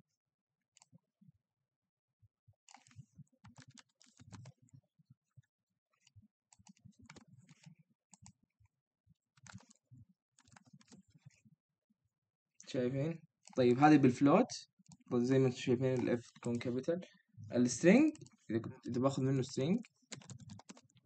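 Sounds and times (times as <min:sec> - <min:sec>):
faint keyboard typing: 0:02.7 - 0:08.4, 0:09.4 - 0:11.4, 0:13.4 - 0:21.0.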